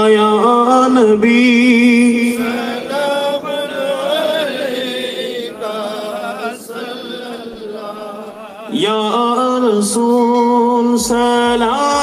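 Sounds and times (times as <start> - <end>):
man chanting through microphone: 0.0 - 12.0.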